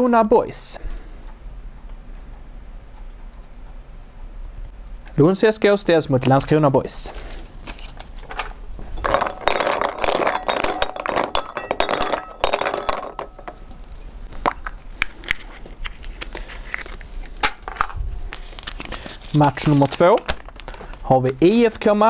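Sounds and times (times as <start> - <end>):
plastic balls rattling in glass bowl: 8.1 - 14.7.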